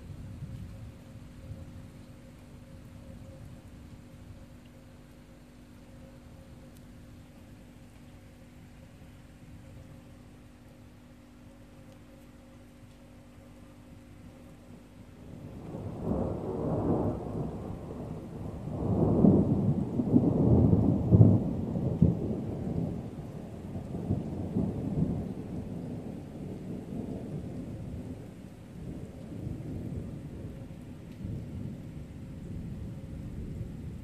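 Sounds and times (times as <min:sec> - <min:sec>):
rolling thunder: 0:15.3 - 0:34.0.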